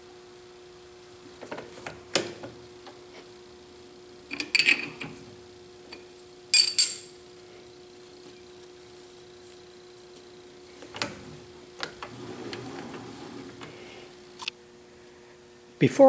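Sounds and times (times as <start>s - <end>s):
wrench clinking metal on metal: 6.6s - 7.2s.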